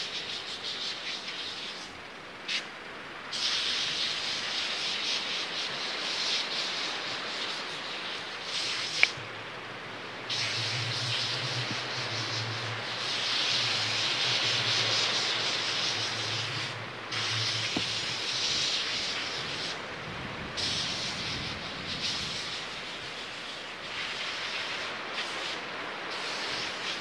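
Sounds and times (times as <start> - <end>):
train running: 10.2 - 27.0.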